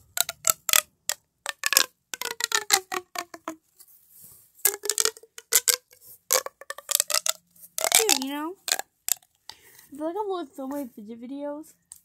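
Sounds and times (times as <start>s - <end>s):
plastic pop tube clicking: 0.0s - 3.6s, 4.6s - 9.7s.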